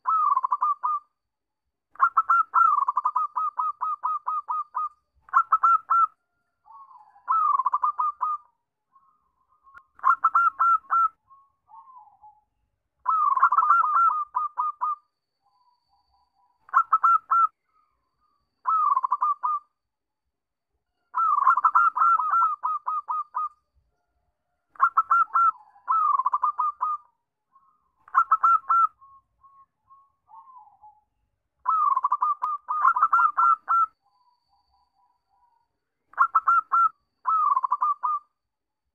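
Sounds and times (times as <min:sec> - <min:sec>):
dove cooing: 0:00.0 - 0:01.1, 0:02.0 - 0:08.5, 0:10.0 - 0:12.4, 0:13.0 - 0:15.0, 0:16.7 - 0:17.5, 0:18.6 - 0:19.7, 0:21.2 - 0:23.6, 0:24.8 - 0:27.1, 0:28.0 - 0:29.6, 0:30.3 - 0:31.0, 0:31.6 - 0:34.0, 0:36.1 - 0:38.3.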